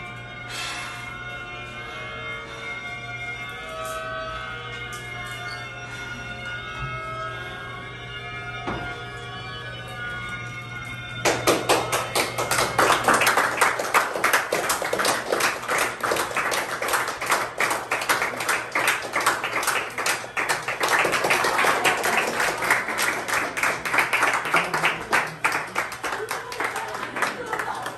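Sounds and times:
audience applauding: 11.2s - 27.9s.

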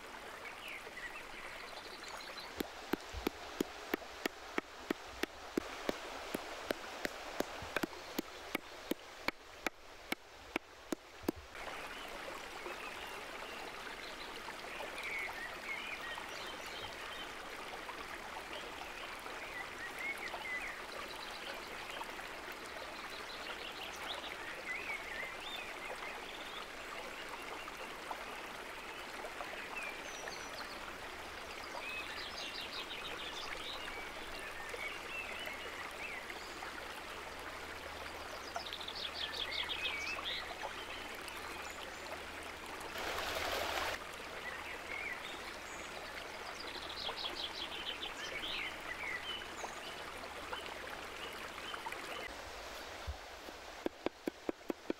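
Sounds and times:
creek rushing: 0.0s - 16.0s, 42.2s - 54.9s.

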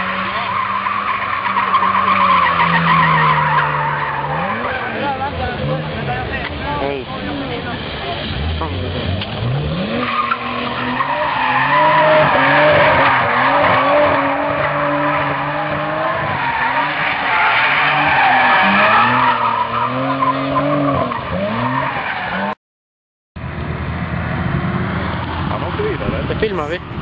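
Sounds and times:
car engine revving: 0.0s - 22.6s
tyres squealing on asphalt: 0.0s - 22.6s.

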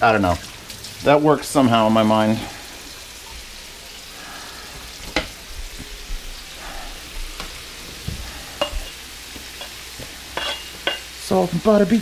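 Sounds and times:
stir-fry sizzling in a pan: 0.0s - 12.0s
utensil knocking and scraping pan: 10.4s - 11.1s.

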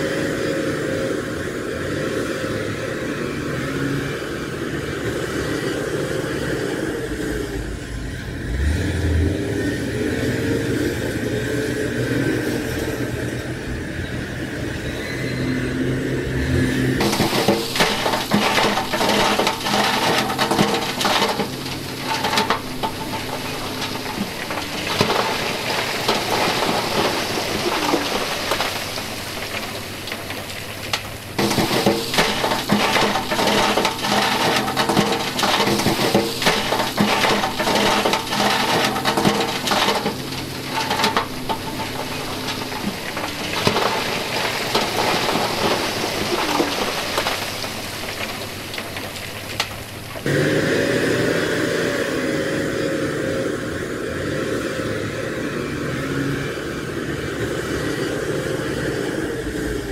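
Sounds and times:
diesel engines humming: 0.0s - 59.9s
stone pouring from trucks: 16.5s - 50.6s.

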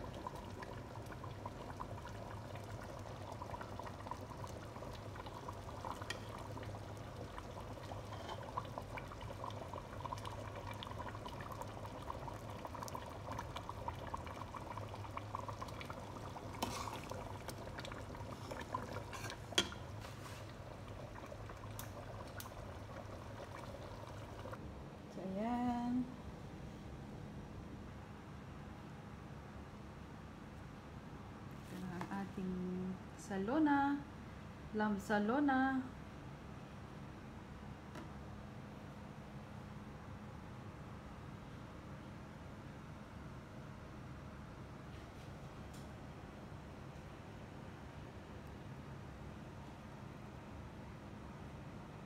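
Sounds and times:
stew pouring and dribbling: 0.0s - 24.6s
steady background hum: 0.0s - 52.0s.

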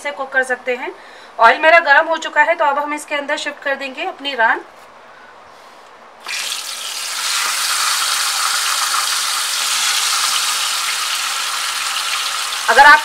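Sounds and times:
meat sizzling in hot oil: 6.2s - 13.0s.

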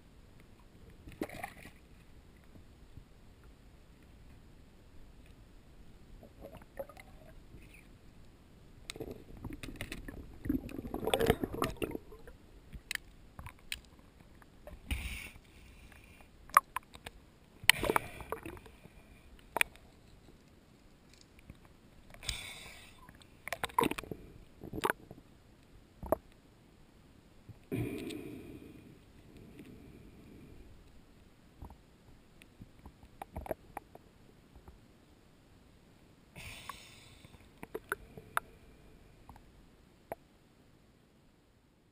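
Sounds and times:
water sloshing underwater: 0.4s - 26.4s, 27.5s - 34.9s
water splashing: 1.1s - 1.8s, 8.9s - 12.4s.

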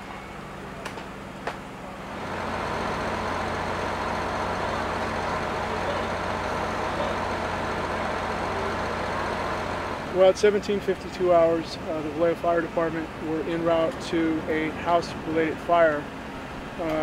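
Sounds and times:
engine running: 0.5s - 17.0s.

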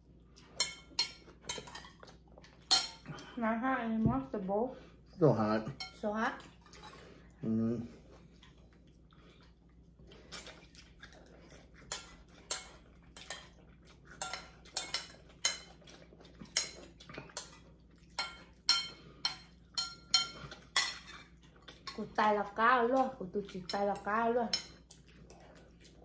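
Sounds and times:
cutlery clinking on ceramic bowls: 0.5s - 2.0s, 2.6s - 3.1s, 5.8s - 6.0s, 14.2s - 15.8s, 16.4s - 21.3s.

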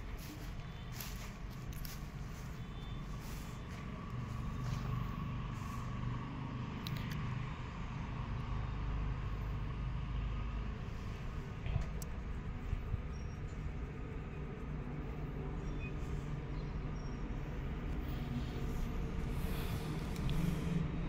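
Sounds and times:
vehicle engine running: 0.0s - 21.0s.

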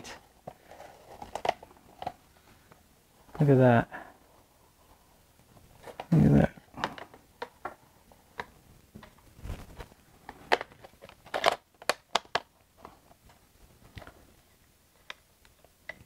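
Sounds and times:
film backing paper crinkling: 0.4s - 3.5s.

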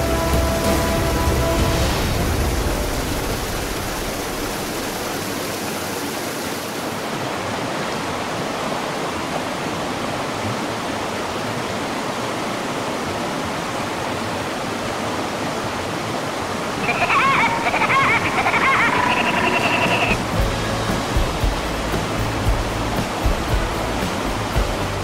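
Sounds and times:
whitewater rapids rushing: 0.0s - 25.0s.

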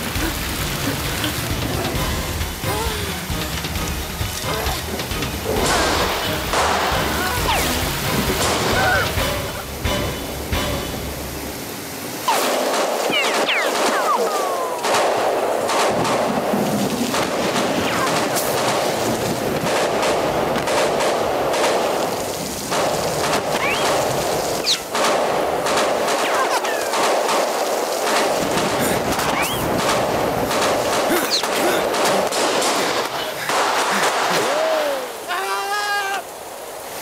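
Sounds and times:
heavy rain hiss: 0.0s - 37.0s
gunfire shots and automatic bursts: 12.4s - 34.3s.

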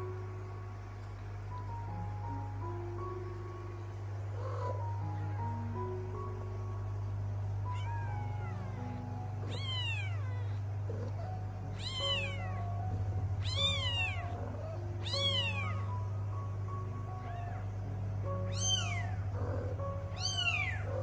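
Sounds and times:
soft background music: 0.0s - 21.0s
kittens mewing: 7.7s - 12.8s, 13.4s - 16.0s, 18.5s - 21.0s.

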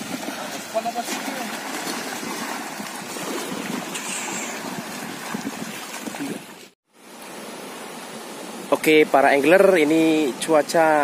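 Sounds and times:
splashes from wading: 0.0s - 6.8s
water washing over breakwater: 0.0s - 6.8s
wind on microphone: 2.0s - 6.7s.

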